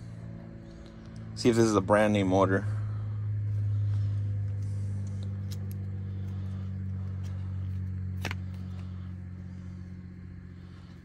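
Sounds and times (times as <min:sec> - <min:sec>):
steady low hum: 0:00.0 - 0:11.0
light clicks of handled parts: 0:04.4 - 0:08.9.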